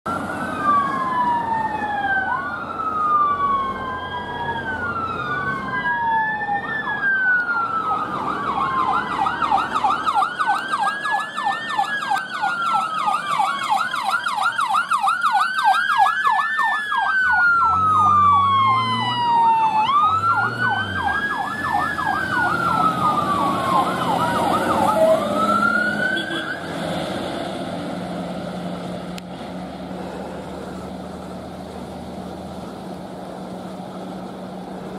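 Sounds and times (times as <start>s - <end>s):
engine and road noise: 0.0s - 34.9s
siren wailing: 0.1s - 26.8s
siren fast yelp: 0.6s - 26.7s.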